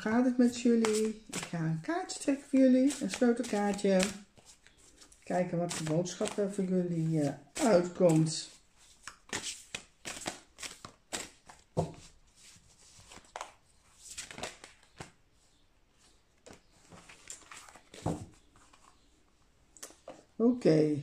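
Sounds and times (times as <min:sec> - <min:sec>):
cards being shuffled: 0:00.4 - 0:15.2, 0:16.4 - 0:19.0.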